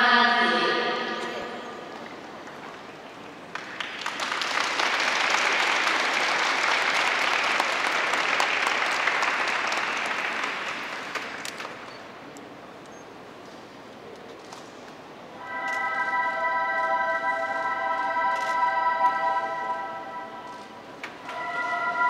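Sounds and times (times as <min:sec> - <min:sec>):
spectators applauding: 0:03.3 - 0:12.1.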